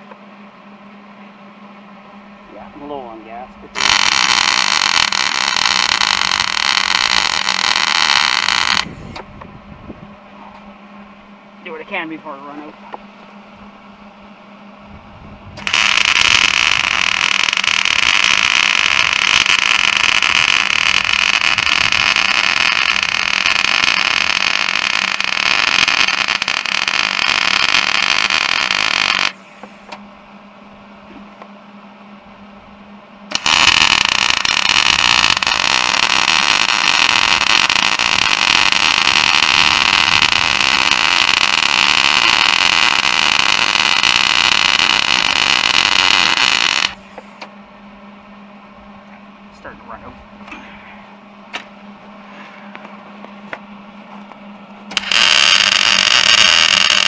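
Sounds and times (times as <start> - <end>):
welder arc hissing: 3.8 - 9.2, 15.6 - 29.9, 33.3 - 47.5, 54.9 - 57.0.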